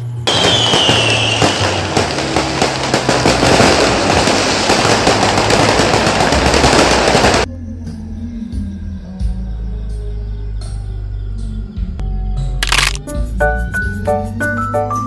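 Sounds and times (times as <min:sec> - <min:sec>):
firecrackers crackling: 0:00.3 - 0:07.5.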